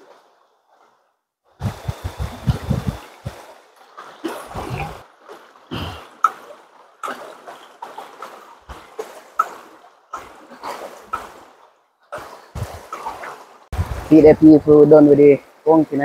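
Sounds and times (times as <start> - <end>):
water splashing and dribbling: 0.0 - 16.0
dull thumps: 1.6 - 3.4.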